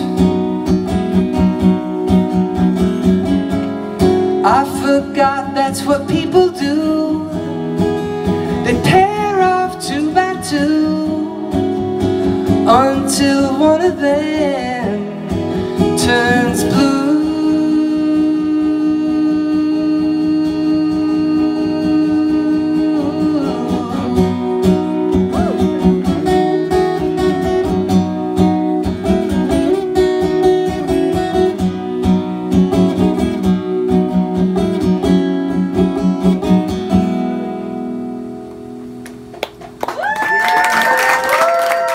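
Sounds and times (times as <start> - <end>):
acoustic guitar strumming: 0.0 - 39.8
audience cheering and whooping: 39.8 - 41.9.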